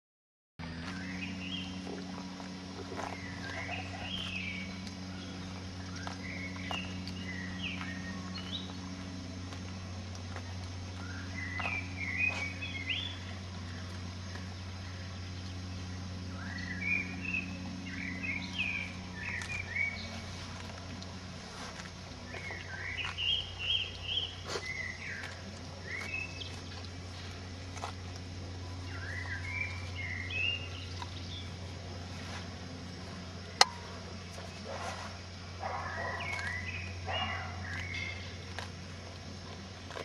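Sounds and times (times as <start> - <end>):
steady low hum: 0.6 - 40.0
songbird warbling: 2.8 - 8.8, 10.4 - 27.9, 28.6 - 31.6, 35.6 - 38.5.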